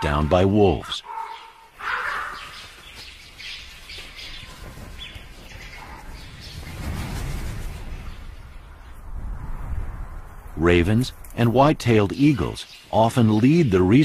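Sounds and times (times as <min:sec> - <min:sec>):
ravens calling: 0:00.0 - 0:06.8.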